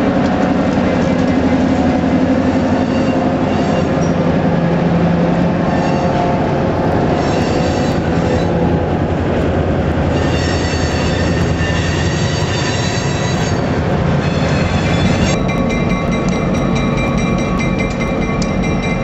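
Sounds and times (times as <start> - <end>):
freight train rolling past: 0.0 - 19.0
train wheels squealing: 2.5 - 4.4, 7.1 - 8.6, 10.1 - 19.0.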